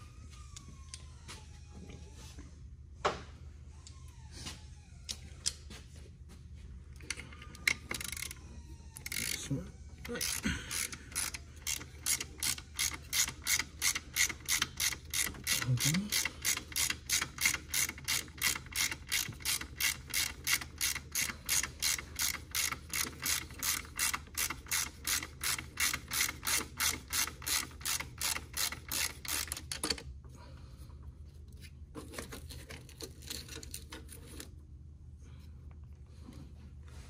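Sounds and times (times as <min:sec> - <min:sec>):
socket ratchet clicking: 0:10.2 - 0:30.0.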